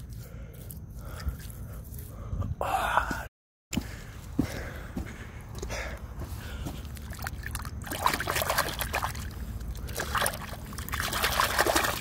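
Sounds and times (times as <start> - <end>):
water splashing and sloshing: 6.3 - 12.0.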